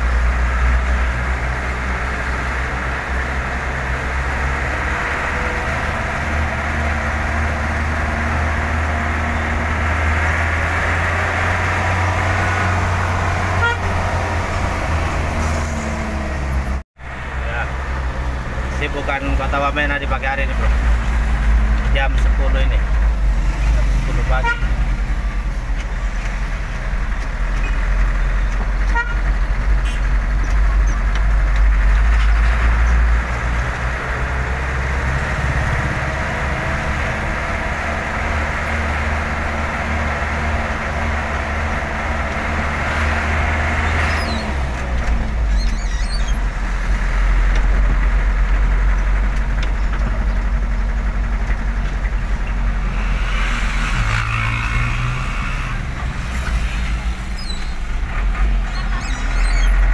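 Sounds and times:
truck engine drone with road noise: 0.0s - 59.9s
car horn toot: 13.5s - 14.0s, 24.3s - 24.8s, 28.9s - 30.1s.

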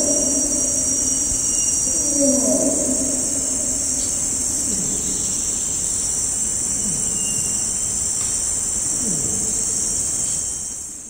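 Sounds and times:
orangutan low falling calls: 0.0s - 10.8s
insects droning: 0.0s - 11.0s.

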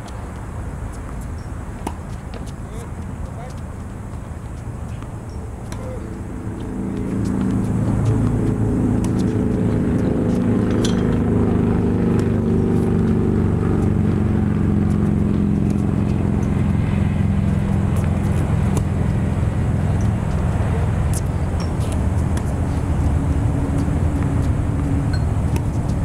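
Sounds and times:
tennis ball strikes: 1.1s - 2.6s, 4.8s - 11.2s, 17.9s - 19.2s, 19.8s - 23.2s
loud engine drone: 5.5s - 26.0s.

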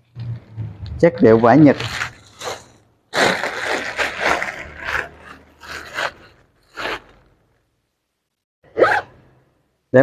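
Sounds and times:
rustling of cloth and plastic: 1.3s - 7.6s.

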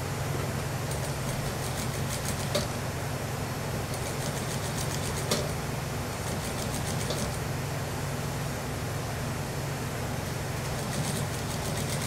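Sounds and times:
sewing machine stitching: 6.3s - 7.4s, 10.7s - 12.0s.

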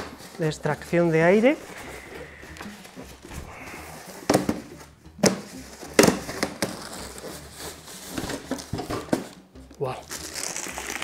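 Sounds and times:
polystyrene foam crackling: 0.0s - 4.3s, 5.4s - 8.8s, 10.0s - 11.0s.

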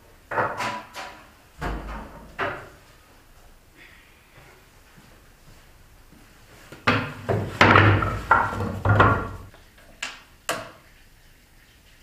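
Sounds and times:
wooden boards knocking on table: 6.9s - 9.5s.

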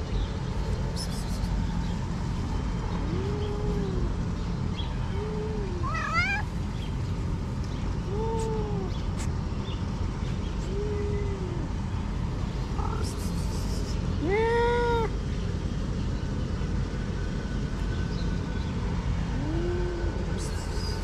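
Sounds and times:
cats meowing: 5.1s - 6.6s
cat chirps: 5.6s - 6.5s.

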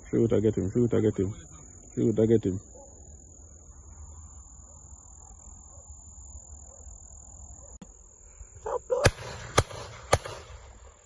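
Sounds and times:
crickets trilling: 0.0s - 11.0s
shotgun shots with echo: 9.0s - 10.7s.

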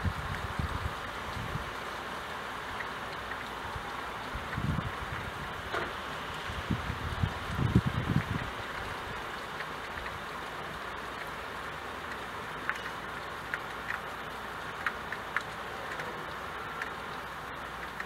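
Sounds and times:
steady rain hiss: 0.0s - 18.0s
water drips plinking: 2.6s - 6.0s, 7.2s - 18.0s.

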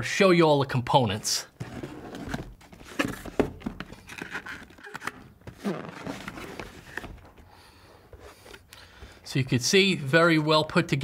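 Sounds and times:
box knocks and clicks: 1.6s - 7.3s
papery scraping and rustling: 1.6s - 7.3s.

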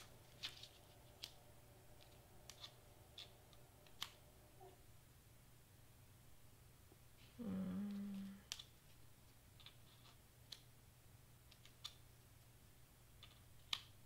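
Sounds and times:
cardstock pieces clicking and tapping: 0.0s - 4.2s, 7.9s - 10.7s, 11.4s - 12.1s, 13.1s - 14.0s
person humming: 7.3s - 8.5s.

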